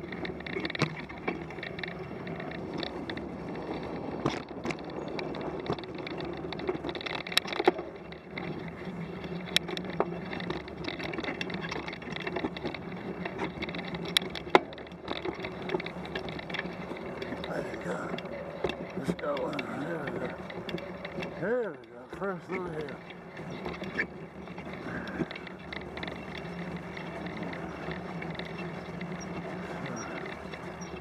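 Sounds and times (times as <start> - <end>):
bicycle tyres rolling: 0.0 - 31.0
bike clicks and knocks: 0.0 - 31.0.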